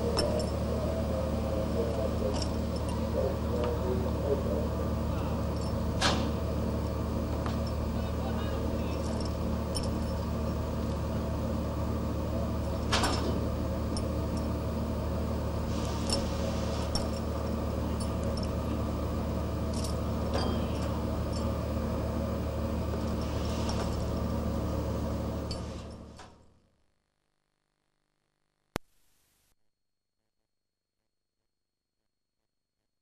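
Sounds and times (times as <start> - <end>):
ship engine humming: 0.0 - 26.1.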